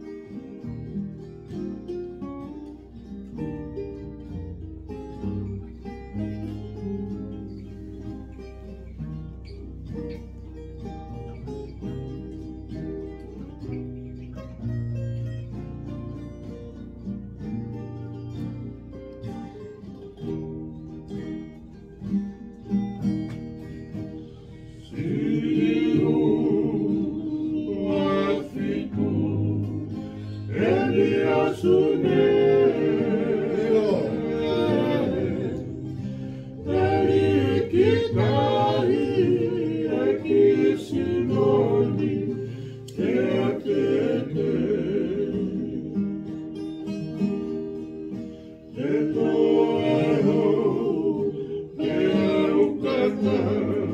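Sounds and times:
guitars and ukuleles strummed: 0.0 - 53.9
men singing in harmony: 24.8 - 46.3, 48.7 - 53.9.

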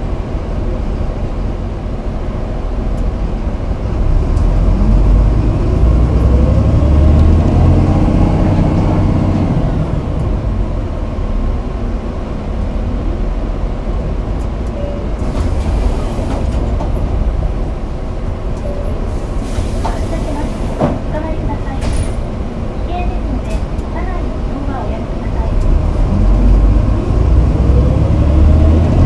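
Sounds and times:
bus engine accelerating: 0.0 - 29.0
road rumble: 0.0 - 29.0
brief air hiss: 19.1 - 20.8.

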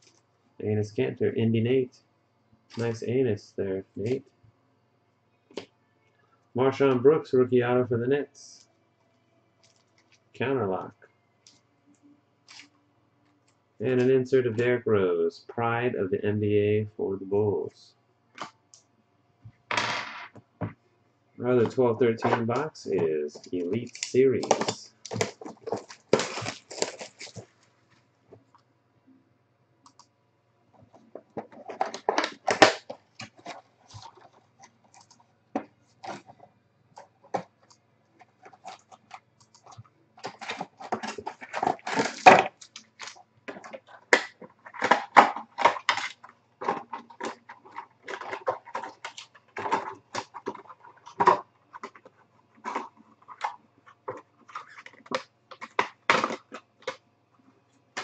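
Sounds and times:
packaging crinkling and rustling: 21.6 - 28.0, 31.0 - 36.4, 37.3 - 57.0.

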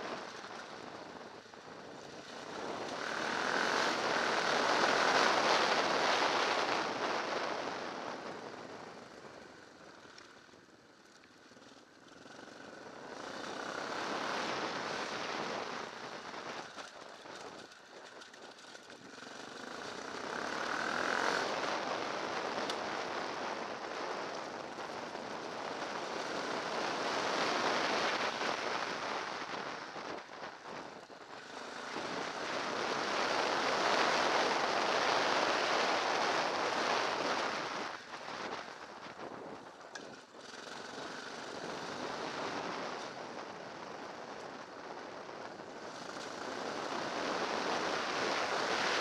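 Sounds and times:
wind rushing over microphone: 0.0 - 9.6, 19.1 - 49.0
dirt bike engine: 0.0 - 49.0.

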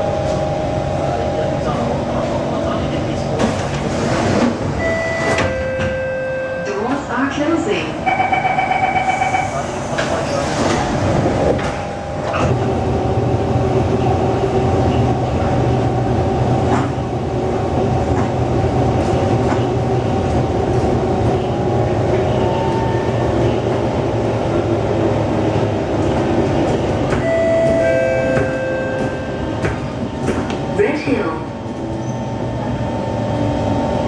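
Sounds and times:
metro train rumble: 0.0 - 34.0
train whining tones: 4.3 - 13.2, 21.3 - 23.9, 25.6 - 30.2.

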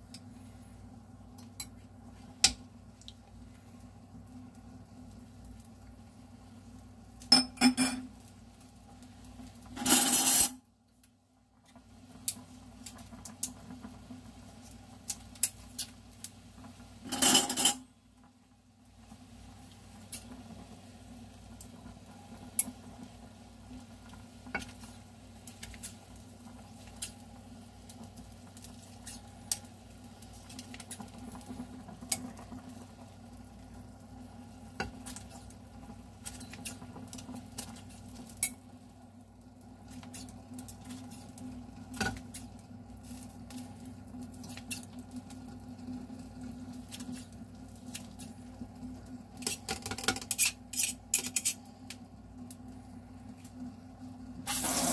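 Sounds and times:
broth bubbling at the boil: 0.0 - 17.1, 18.0 - 54.9
metal tongs clicking on pot: 49.5 - 51.6.

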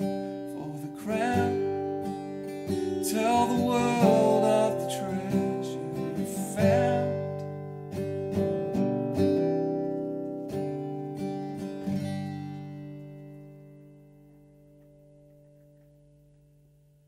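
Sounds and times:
acoustic guitar strummed: 0.0 - 17.0
man singing: 0.4 - 2.0, 2.9 - 7.5.

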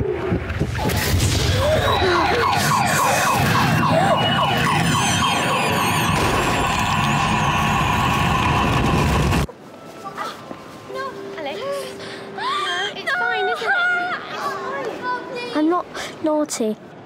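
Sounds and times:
distorted sound-design soundscape: 0.0 - 9.5
siren-like warble: 1.0 - 9.5.

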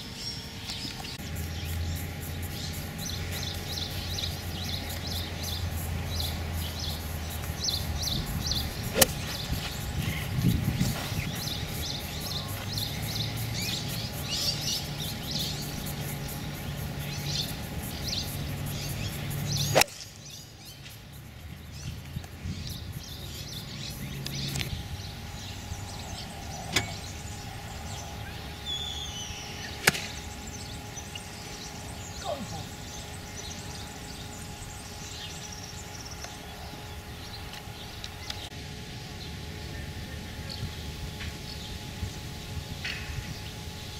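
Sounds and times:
birds chirping: 0.0 - 43.9
low steady hum: 0.0 - 43.9
golf club striking ball: 8.9 - 9.4, 19.7 - 20.0, 29.8 - 30.2.

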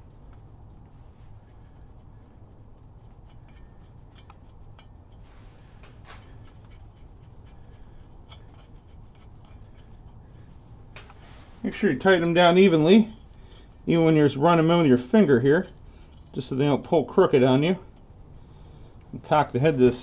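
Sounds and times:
light metallic clicks and rubbing: 0.0 - 13.8
low steady hum: 0.0 - 20.0.

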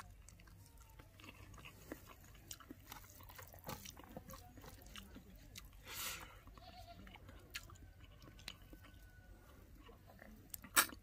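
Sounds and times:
faint chewing: 0.0 - 11.0
mouth clicks and smacks: 10.5 - 11.0.

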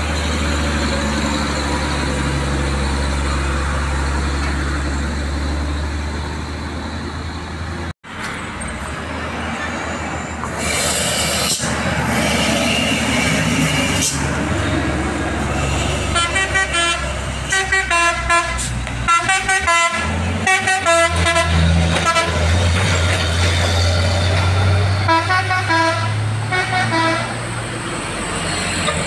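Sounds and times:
diesel truck engine droning: 0.0 - 29.0
traffic passing: 0.0 - 29.0
musical truck horn: 15.9 - 22.5, 25.0 - 27.4.

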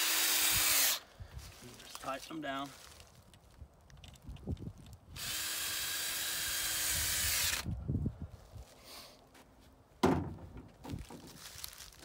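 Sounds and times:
cordless drill running: 0.0 - 1.0, 5.2 - 7.7
soft knocks: 10.0 - 11.4.

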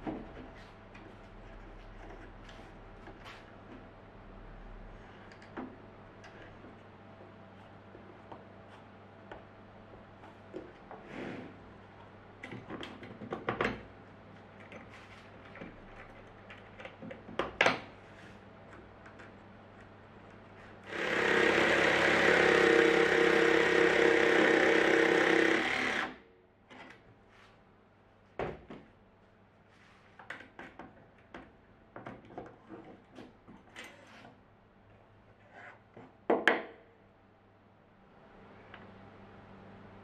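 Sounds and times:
jigsaw cutting wood: 20.9 - 26.2.

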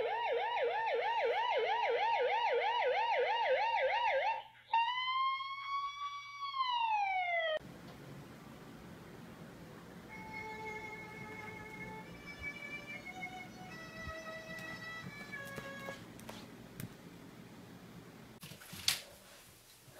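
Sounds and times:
police siren through phone speaker: 0.0 - 7.6.

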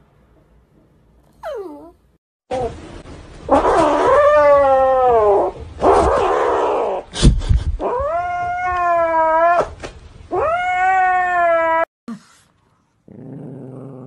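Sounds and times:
kitten growling: 1.4 - 2.0
kitten yowling: 1.4 - 2.0.

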